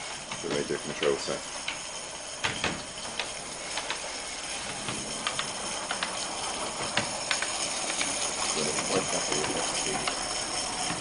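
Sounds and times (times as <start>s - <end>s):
steam locomotive hissing: 0.0s - 11.0s.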